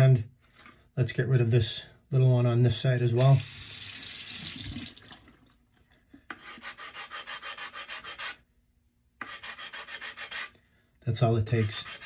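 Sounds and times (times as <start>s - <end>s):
running water: 3.2s - 5.8s
sharpening stone rubbing on stone: 6.3s - 8.4s, 9.2s - 10.6s, 11.6s - 12.0s.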